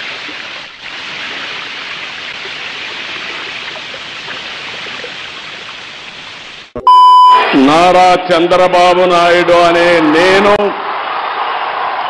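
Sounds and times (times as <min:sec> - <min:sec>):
water pouring and splashing: 0:00.0 - 0:06.7.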